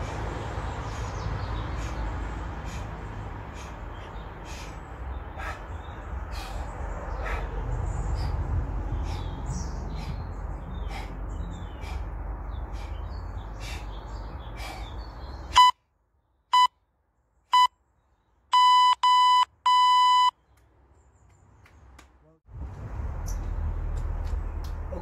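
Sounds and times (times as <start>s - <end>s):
birds chirping: 0.0s - 15.7s
electronic timer beeping: 15.6s - 15.8s, 18.6s - 20.3s.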